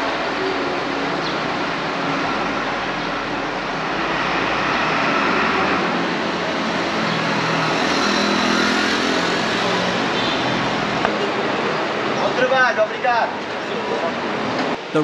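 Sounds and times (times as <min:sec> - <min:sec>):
vehicle engine running: 0:00.0 - 0:11.2
street traffic: 0:00.0 - 0:15.0.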